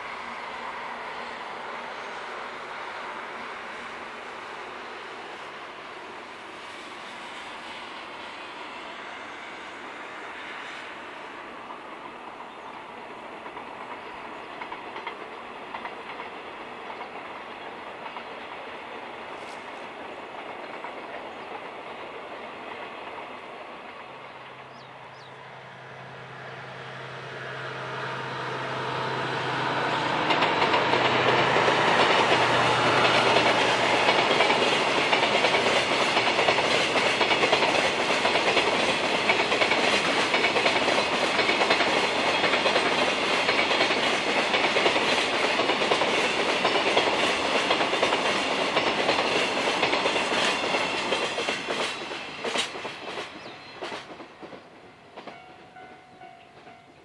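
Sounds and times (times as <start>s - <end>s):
train wagons rumbling on rails: 6.2s - 57.0s
locomotive engine hum: 20.1s - 54.9s.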